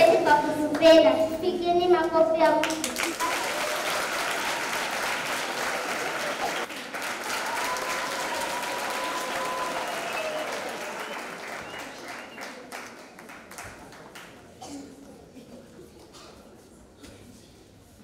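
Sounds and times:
audience applauding: 0:02.6 - 0:14.4.

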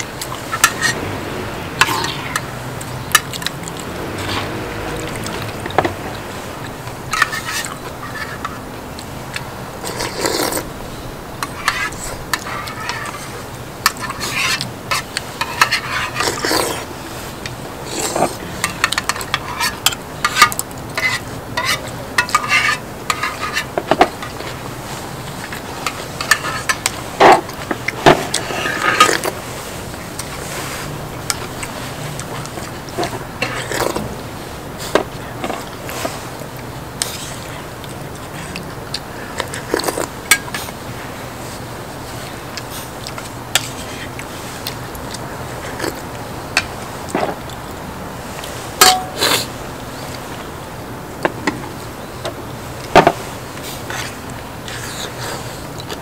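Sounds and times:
utensils clinking against bowls: 0:00.0 - 0:01.1, 0:01.8 - 0:06.4, 0:17.9 - 0:29.4, 0:48.4 - 0:49.5.

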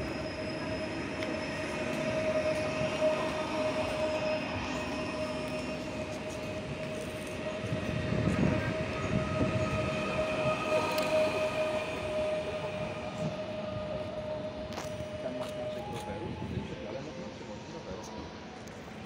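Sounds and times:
electric train drive whine: 0:00.0 - 0:19.0
train wheels rumbling: 0:00.0 - 0:19.0.

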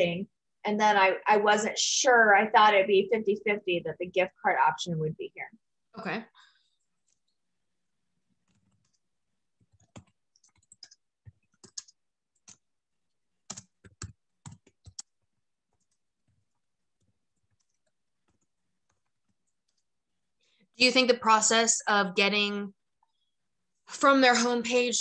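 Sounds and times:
faint computer clicks and taps: 0:08.3 - 0:20.0.

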